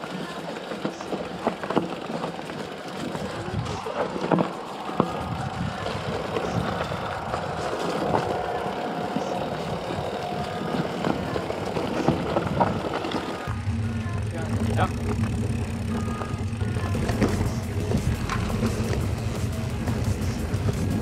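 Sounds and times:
wheels knocking on rocks: 0.0 - 13.5, 14.6 - 21.0
bike rumbling and rattling: 0.0 - 21.0.

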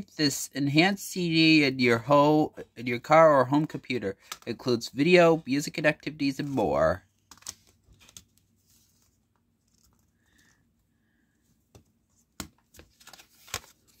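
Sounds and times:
paper sleeve tapping and rustling: 11.7 - 14.0.

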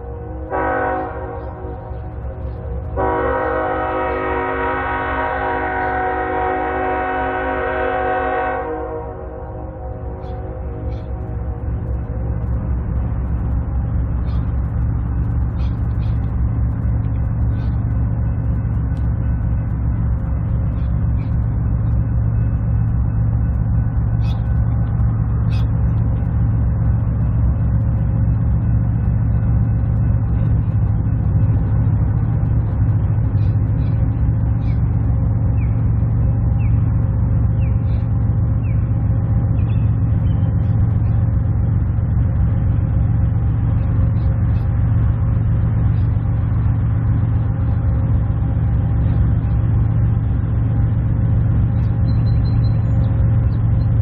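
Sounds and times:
diesel locomotives droning: 0.0 - 54.0.

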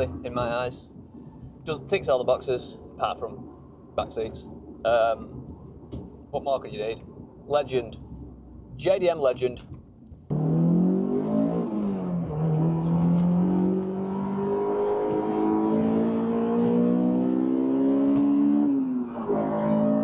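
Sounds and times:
car engine accelerating: 10.3 - 20.0.

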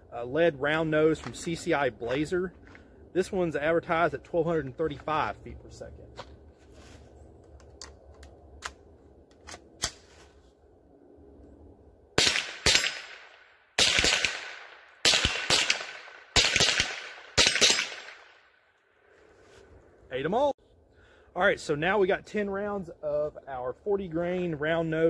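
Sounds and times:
rifle gunshots: 12.2 - 18.4.

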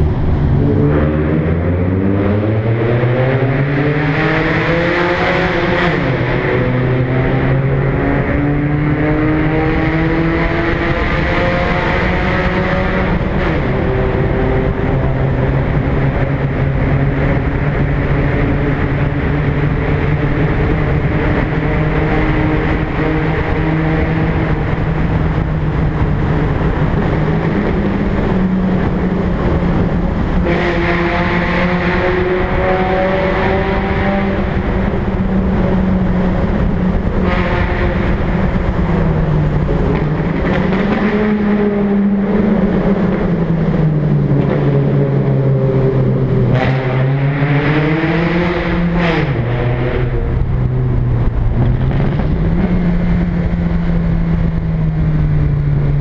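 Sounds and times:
car engine and exhaust in tunnel: 0.0 - 56.0.

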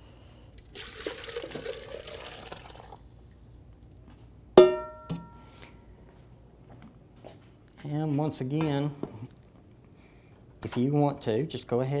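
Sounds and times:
liquid pouring and splashing: 0.6 - 3.6
metal clang: 4.6 - 5.4.

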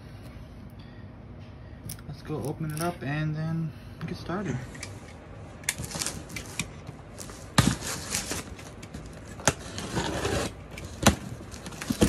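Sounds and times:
box cutter slicing tape: 9.3 - 12.0.

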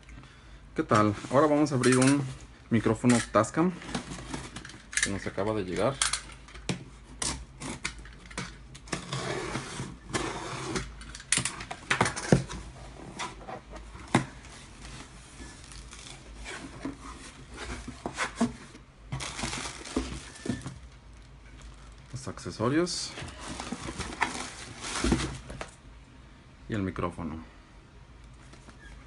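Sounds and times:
cardboard and tape rustling: 0.8 - 25.8
plastic packing crinkling: 14.1 - 22.4, 23.3 - 25.8.

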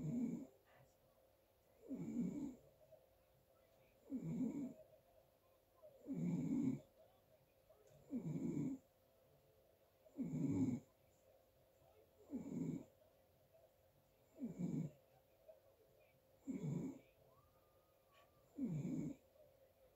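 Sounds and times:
quiet breathing: 0.0 - 19.9
person snoring: 1.8 - 2.6, 4.0 - 4.8, 6.0 - 6.8, 8.1 - 8.8, 10.1 - 10.9, 12.2 - 12.9, 14.4 - 14.9, 16.4 - 17.0, 18.6 - 19.2.

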